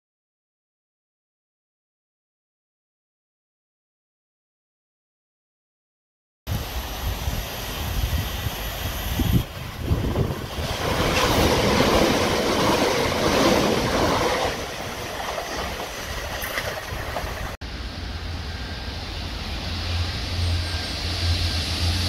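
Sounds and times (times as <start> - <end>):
train wheel and rail noise: 6.5 - 22.0.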